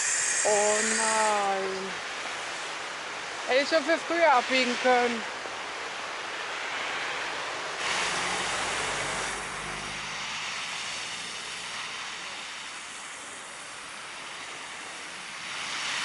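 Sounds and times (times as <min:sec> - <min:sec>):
tyres hissing on wet road: 0:00.0 - 0:16.0
car engines humming: 0:07.6 - 0:12.3.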